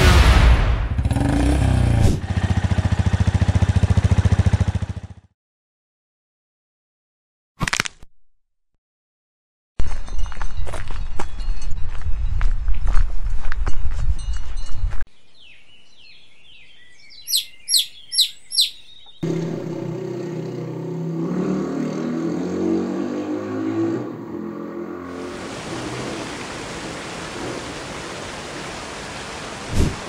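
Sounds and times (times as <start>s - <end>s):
motorcycle engine running: 0.9s - 5.3s, 19.2s - 21.5s
chicks peeping: 17.3s - 19.0s.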